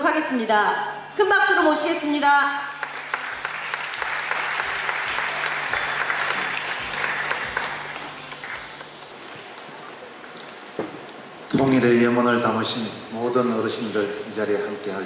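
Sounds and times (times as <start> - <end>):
crowd applauding: 2.6 - 10.0.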